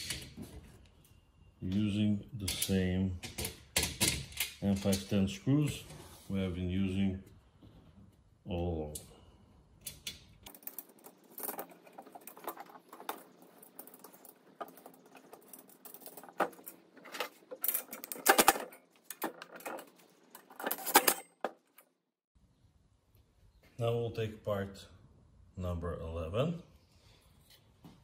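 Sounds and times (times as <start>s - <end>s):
metal hardware clicking and clinking: 2.4s - 5.2s, 9.8s - 21.9s.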